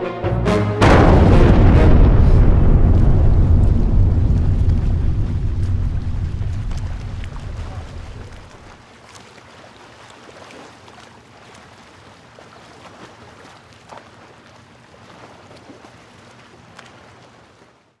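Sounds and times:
faint clicks and crackles: 0:02.9 - 0:08.8.

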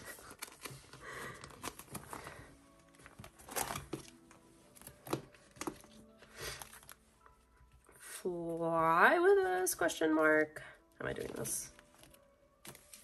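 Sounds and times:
page being turned: 0:00.0 - 0:07.0, 0:11.1 - 0:13.0
plastic sleeves crinkling: 0:00.0 - 0:07.9, 0:11.1 - 0:13.0
soft background music: 0:00.0 - 0:13.0.

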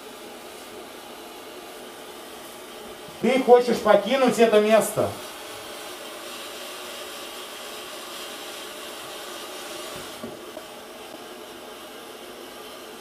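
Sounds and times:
static hiss: 0:00.0 - 0:13.0.

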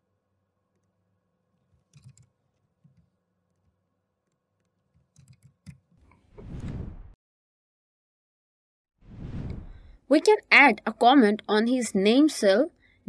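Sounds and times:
mouse and keyboard clicks: 0:01.8 - 0:03.7, 0:04.3 - 0:05.8
whoosh sound effect: 0:06.3 - 0:07.2, 0:09.0 - 0:09.9.

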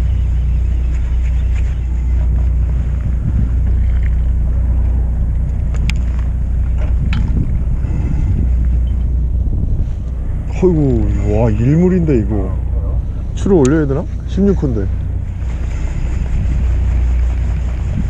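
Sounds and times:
boat engine rumble: 0:00.0 - 0:18.0
wind buffeting microphone: 0:02.3 - 0:18.0.

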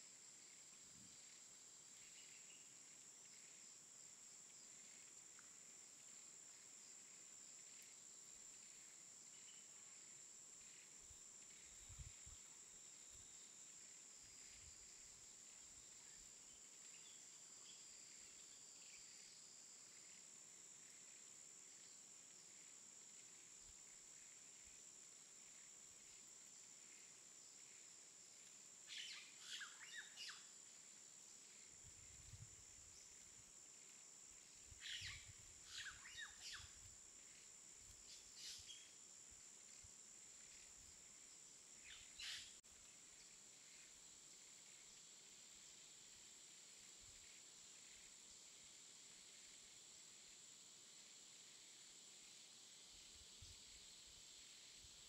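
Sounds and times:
faint chirps: 0:00.0 - 0:03.7, 0:04.6 - 0:24.8, 0:25.4 - 0:49.8
high-pitched insect drone: 0:34.4 - 0:37.5
bird chirps: 0:34.8 - 0:36.7, 0:41.8 - 0:42.6.

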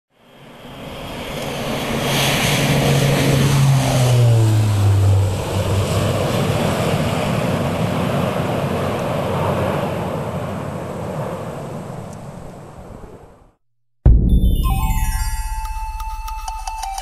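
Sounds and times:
turboprop airplane passing: 0:00.2 - 0:13.5.

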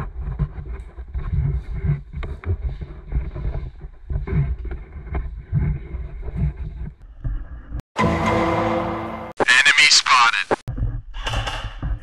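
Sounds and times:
clothing rubbing near microphone: 0:00.0 - 0:07.0.

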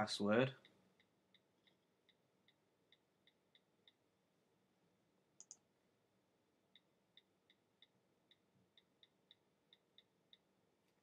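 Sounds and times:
typing on keyboard: 0:05.4 - 0:05.6.

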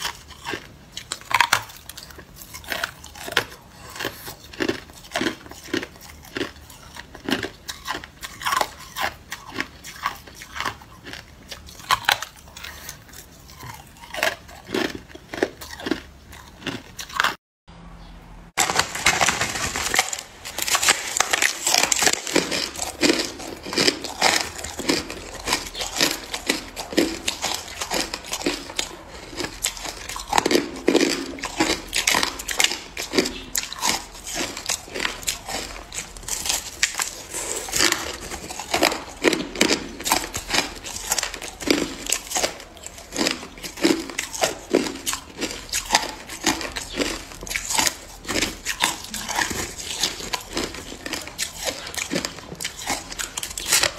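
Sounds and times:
ice crunching and crackling: 0:18.6 - 0:53.9.

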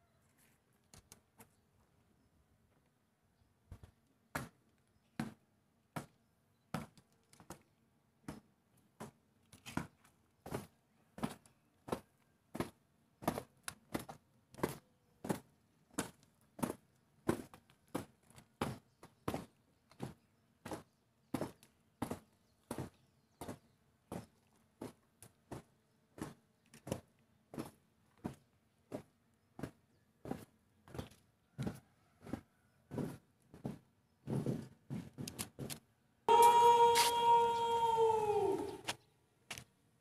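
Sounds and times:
boots marching in unison: 0:08.2 - 0:39.6.

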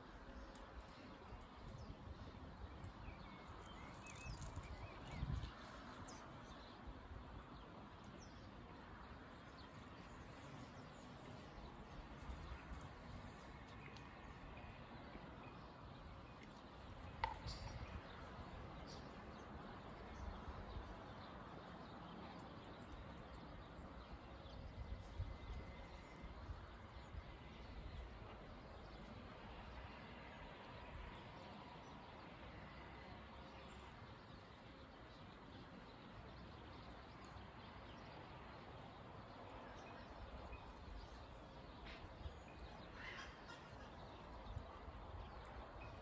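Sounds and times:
distant bird calls: 0:22.1 - 0:46.0.

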